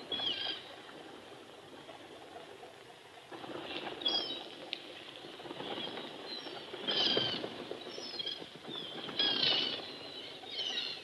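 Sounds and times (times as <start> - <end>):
steady background hiss: 0.0 - 11.0
gulls calling: 3.5 - 11.0.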